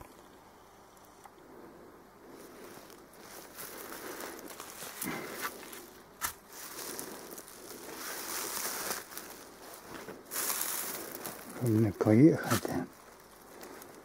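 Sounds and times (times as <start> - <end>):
footsteps on loose stones: 3.2 - 14.0.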